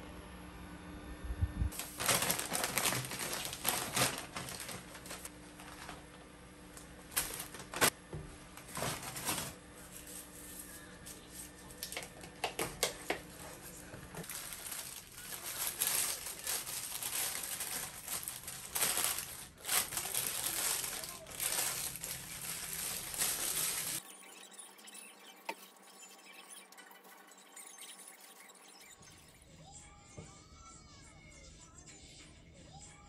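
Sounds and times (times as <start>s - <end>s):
packaging crinkling and rustling: 1.7s - 8.0s, 8.6s - 10.4s, 11.2s - 24.0s.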